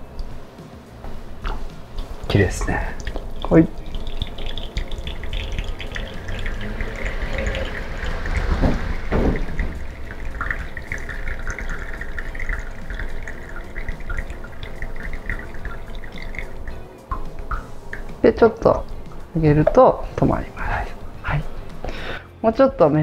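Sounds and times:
soft low knocks: 0:01.1 - 0:21.8
espresso trickling into a cup: 0:01.4 - 0:19.8.

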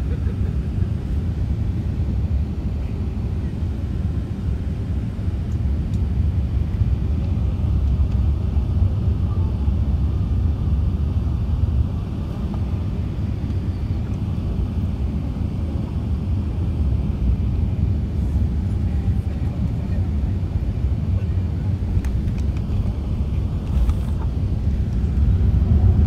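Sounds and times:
airliner cabin engine rumble: 0:00.0 - 0:26.0.

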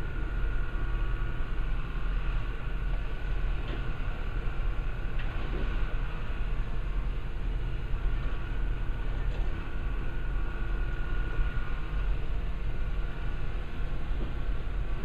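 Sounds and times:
machine engine rumbling: 0:00.0 - 0:15.0.

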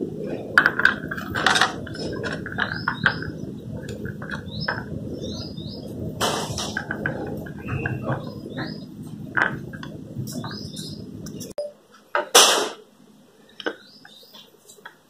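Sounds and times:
small birds chirping: 0:01.8 - 0:11.6, 0:13.4 - 0:15.0.

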